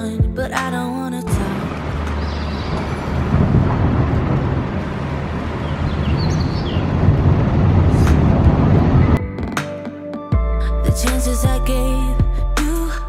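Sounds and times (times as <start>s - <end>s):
music: 0.0s - 2.9s, 9.1s - 13.0s
heavy rain pouring: 1.3s - 9.2s.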